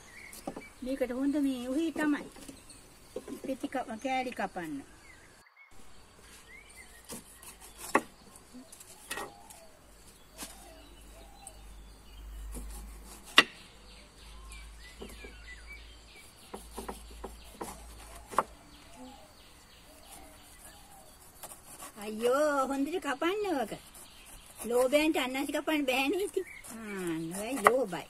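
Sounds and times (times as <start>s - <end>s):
birds and insects chirping: 0.0s - 28.0s
knife slicing pineapple skin: 6.5s - 9.7s, 12.4s - 13.7s, 16.1s - 19.2s, 19.9s - 28.0s.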